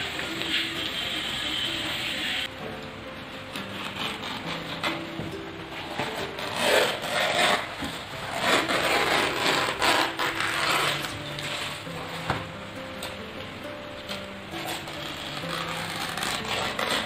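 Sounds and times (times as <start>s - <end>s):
knife scraping leaf: 3.5s - 12.4s, 14.5s - 17.0s.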